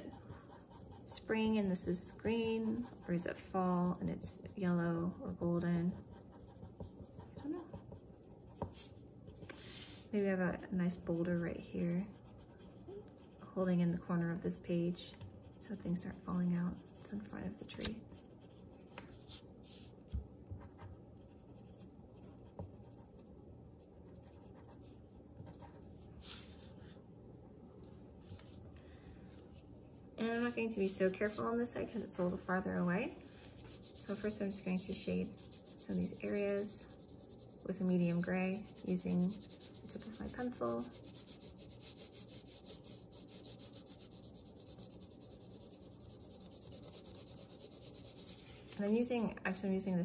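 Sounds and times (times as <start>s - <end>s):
pencil scratching on paper: 0.0s - 14.5s, 15.2s - 19.9s, 20.6s - 23.2s, 23.8s - 26.6s, 30.2s - 32.3s, 33.5s - 48.4s.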